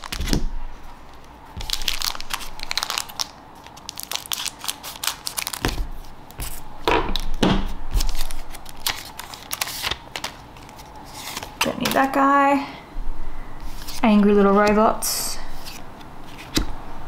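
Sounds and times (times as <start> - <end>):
foil wrapper crinkling: 0.0 - 0.4, 1.2 - 6.5, 8.0 - 11.5.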